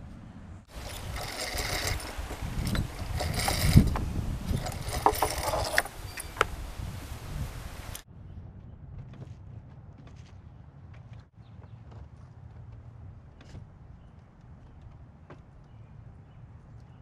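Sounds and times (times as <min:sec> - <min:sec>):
rustling and clattering: 0:00.7 - 0:06.6.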